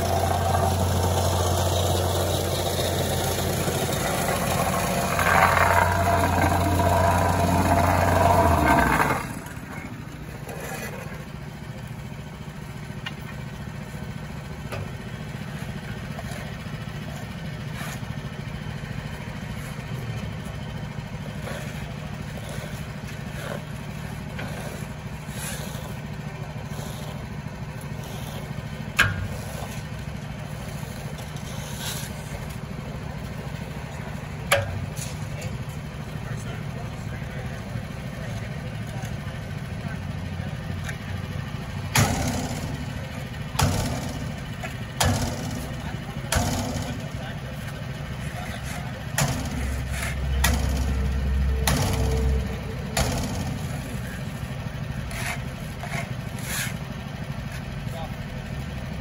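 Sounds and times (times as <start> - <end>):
shovels scraping asphalt: 0.0 - 11.9, 15.4 - 35.7, 43.8 - 58.1
engine idling: 0.0 - 59.0
rake scraping: 17.2 - 18.2, 21.2 - 26.0, 26.6 - 32.6, 48.2 - 56.9.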